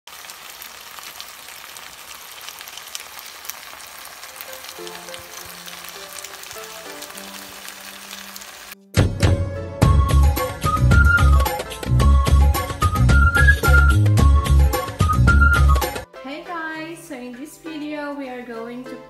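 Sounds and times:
sauce sizzling in a frying pan: 0:00.1 - 0:08.8.

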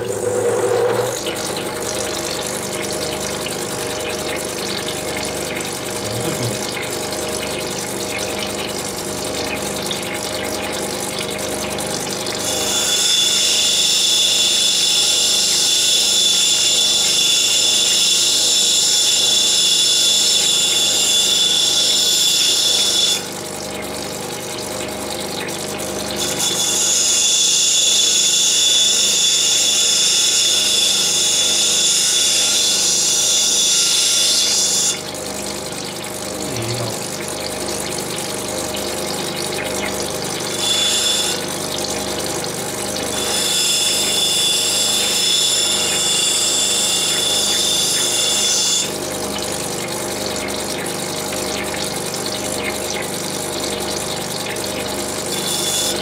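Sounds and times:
machine motor hum: 0:00.0 - 0:09.5, 0:36.2 - 0:37.9.

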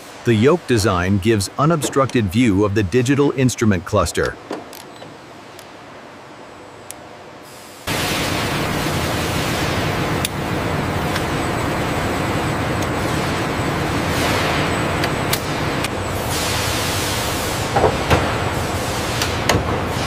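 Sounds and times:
loud rushing factory noise: 0:07.3 - 0:20.0.

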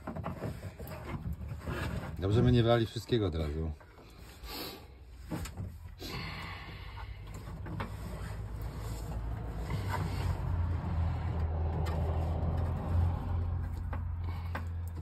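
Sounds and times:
light clicks of wires and metal: 0:11.3 - 0:15.0.

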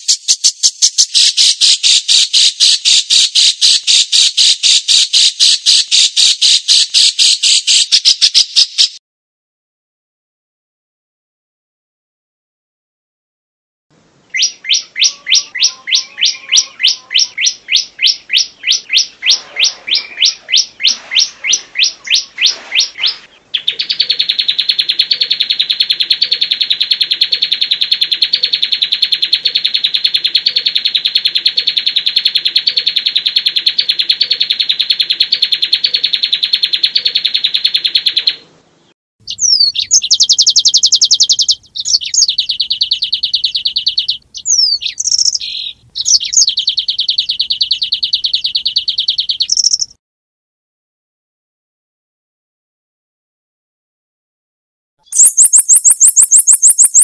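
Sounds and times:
songbird chirps and trills: 0:00.0 - 0:09.0, 0:14.2 - 0:50.0, 0:55.0 - 0:57.0.

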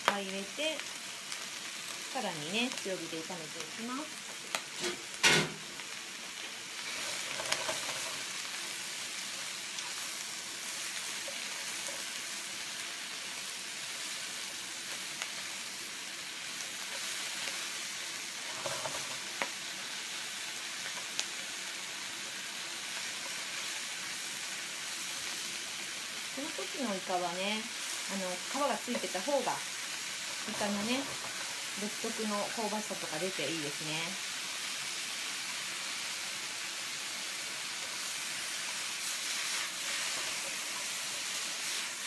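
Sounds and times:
food sizzling in a frying pan: 0:00.0 - 0:42.0.

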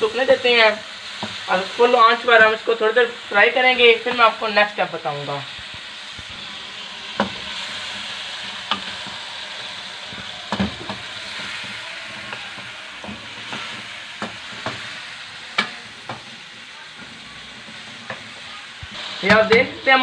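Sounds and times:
chicken sizzling in a wok: 0:00.0 - 0:20.0
spatula knocking against pan: 0:10.1 - 0:14.8.

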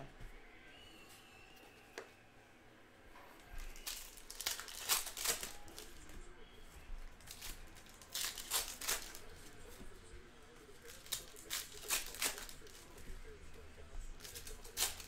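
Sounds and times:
wrapper crinkling: 0:03.6 - 0:06.1, 0:07.2 - 0:09.5, 0:10.8 - 0:13.0, 0:14.2 - 0:15.0.

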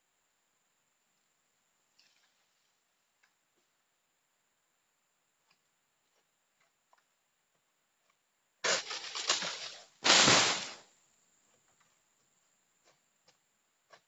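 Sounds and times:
frond crashing on ground: 0:08.6 - 0:10.8
palm frond rustling through leaves: 0:08.7 - 0:10.8.

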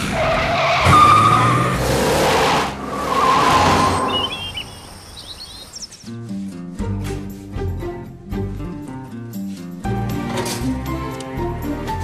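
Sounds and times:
tyres skidding and squealing: 0:00.0 - 0:05.9
birds chirping: 0:03.6 - 0:06.2.

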